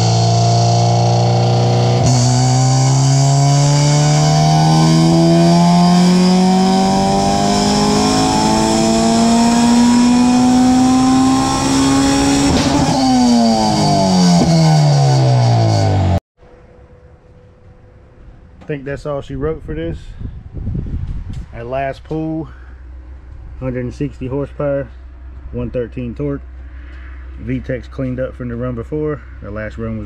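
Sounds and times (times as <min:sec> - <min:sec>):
race car engine revving: 0:00.0 - 0:16.2.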